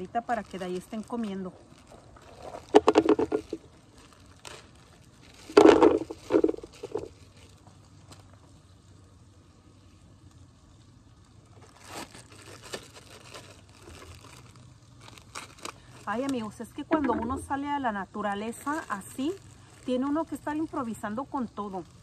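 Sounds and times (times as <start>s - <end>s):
plastic bag crinkling: 0.0s - 9.1s, 11.2s - 22.0s.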